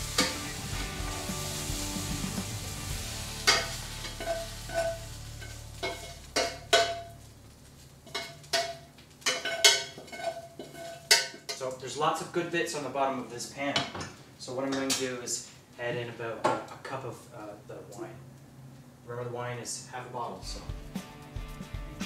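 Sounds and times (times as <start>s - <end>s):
beef sizzling in a frying pan: 0.0s - 11.5s
metal utensil clinking and scraping: 3.4s - 7.2s, 8.0s - 11.7s.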